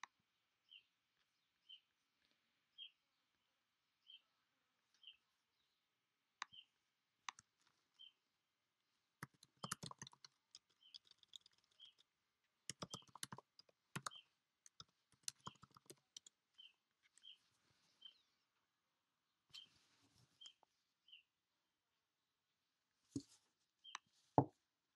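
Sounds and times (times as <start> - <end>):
small bird chirping: 0.0 - 3.4, 4.0 - 5.8, 6.4 - 8.2, 9.2 - 18.5, 19.5 - 21.3, 23.8 - 24.1
typing on a computer keyboard: 9.2 - 12.0, 12.7 - 16.4.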